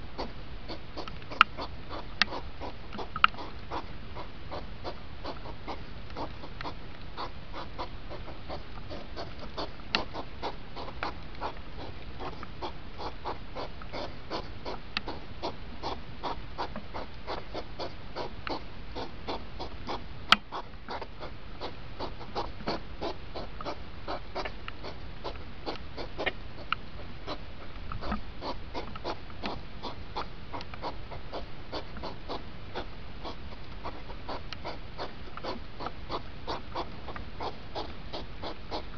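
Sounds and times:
hedgehogs snorting: 0:00.2 - 0:38.9.

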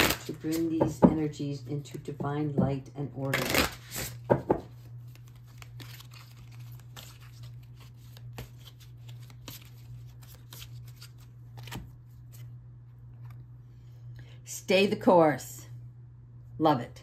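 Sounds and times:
cards being shuffled: 0:00.0 - 0:00.7, 0:03.3 - 0:12.6
steady low hum: 0:00.0 - 0:17.0.

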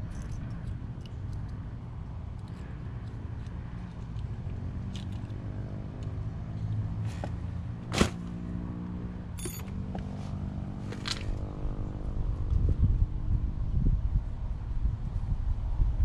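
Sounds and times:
small metal parts clicking: 0:00.0 - 0:01.6, 0:02.4 - 0:04.3
low mechanical hum with drone: 0:00.0 - 0:16.0.

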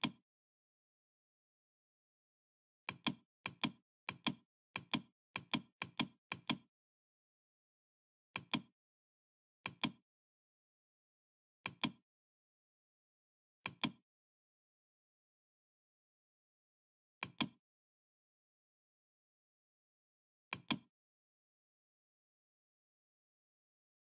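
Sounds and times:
computer mouse button clicking: 0:17.2 - 0:17.6, 0:20.5 - 0:20.9.

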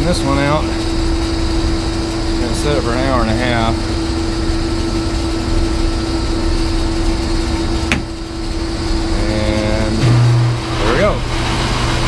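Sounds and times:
machinery rumble and hum: 0:00.0 - 0:12.0.

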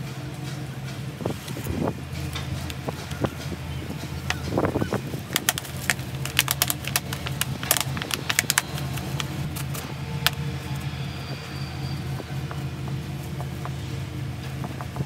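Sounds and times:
steady low hum: 0:00.0 - 0:15.0
plastic bottle clicking and crackling: 0:04.2 - 0:10.4.

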